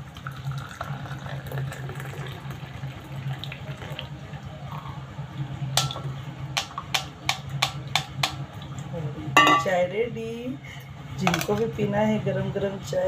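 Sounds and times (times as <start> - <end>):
tea trickling through strainer: 0.2 - 4.1
metallic taps on pan: 9.4 - 9.7.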